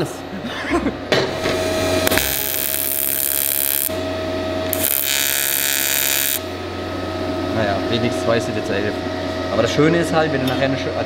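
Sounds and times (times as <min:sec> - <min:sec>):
welding arc buzzing and hissing: 0:01.3 - 0:06.7.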